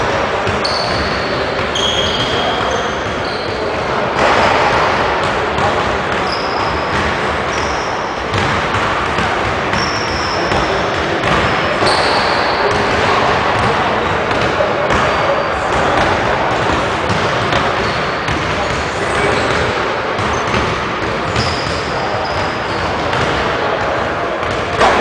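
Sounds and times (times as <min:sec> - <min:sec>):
din of busy gymnasium: 0:00.0 - 0:25.0
high squeaks: 0:00.6 - 0:03.6
basketballs bouncing on hardwood: 0:04.2 - 0:25.0.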